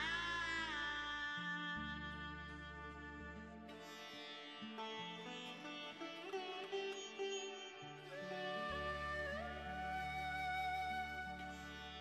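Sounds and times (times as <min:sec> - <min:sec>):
held notes sliding in pitch: 0:08.0 - 0:12.0.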